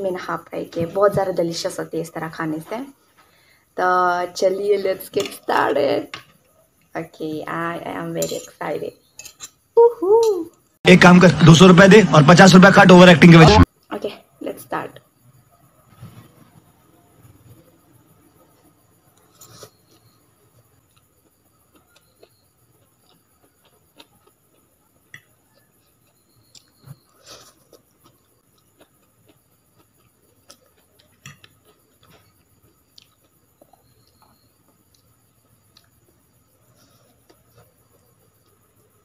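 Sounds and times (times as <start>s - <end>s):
quiet chewing: 18.3s - 39.0s.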